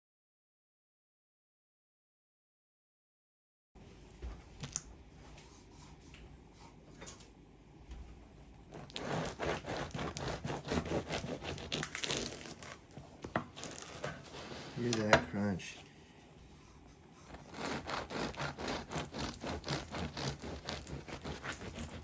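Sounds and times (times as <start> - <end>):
bread knife sawing crunchy crust: 8.7 - 12.8, 13.6 - 14.8, 17.2 - 22.0.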